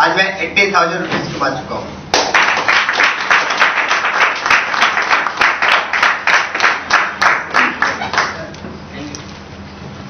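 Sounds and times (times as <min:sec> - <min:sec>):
audience clapping in rhythm: 0:02.1 - 0:08.6.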